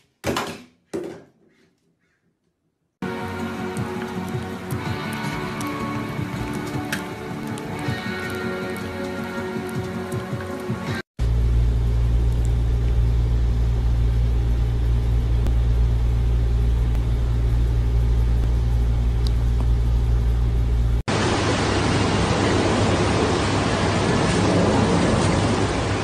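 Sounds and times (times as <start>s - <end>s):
low rumble with hiss: 11.2s - 21.0s.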